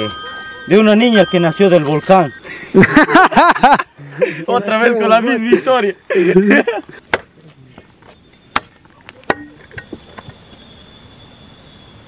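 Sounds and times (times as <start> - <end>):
night insects chirring: 0.0 - 12.0
machete striking dry wood: 7.1 - 7.5, 8.5 - 10.0.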